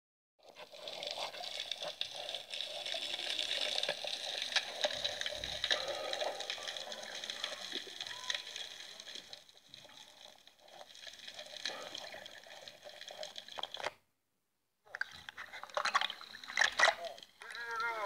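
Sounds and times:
underwater hiss with clicks: 0.9 - 9.4.

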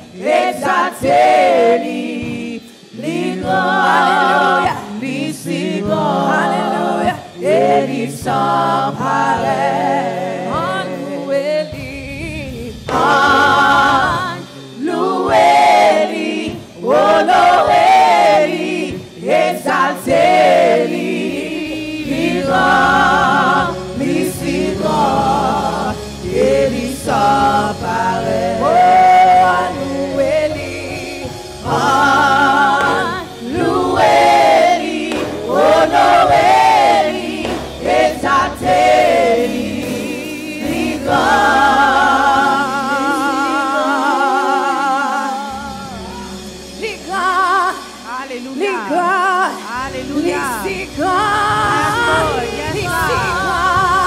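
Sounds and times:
low musical accompaniment: 0.0 - 54.0
voices singing along: 0.0 - 54.0
woman and man singing gospel: 0.0 - 54.0.

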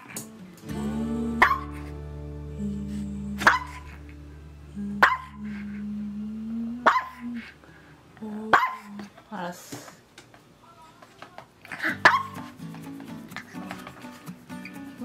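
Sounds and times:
background music: 0.0 - 5.5, 11.9 - 15.0
dog barking: 1.4 - 1.8, 3.4 - 3.9, 5.0 - 5.4, 6.8 - 7.3, 8.5 - 9.0, 11.8 - 12.5.

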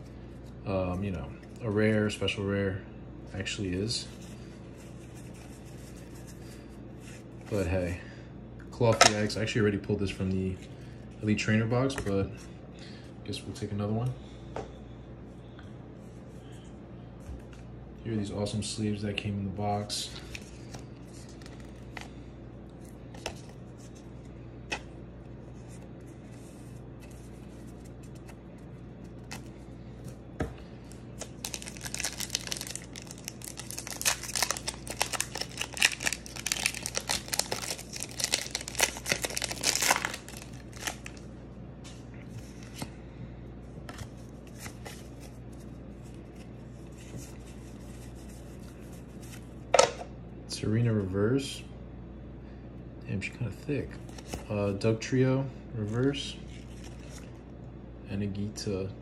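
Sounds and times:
cards clicking and rustling: 31.2 - 41.2
foil pack tearing and crinkling: 31.2 - 41.2.

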